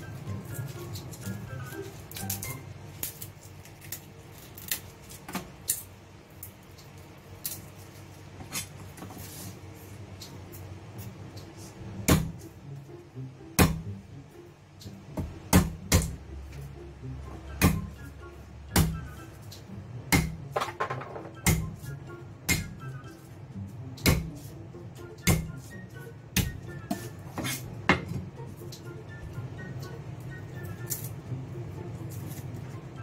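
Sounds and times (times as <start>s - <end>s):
garlic skins crackling: 0.0s - 9.7s.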